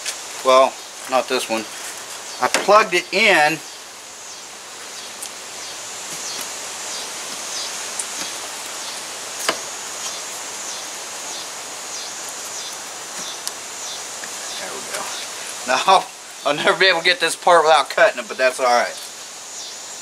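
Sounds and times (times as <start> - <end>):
pulsing insect chirring: 0.0 - 17.5, 18.1 - 20.0
outdoor ambient noise: 0.0 - 20.0.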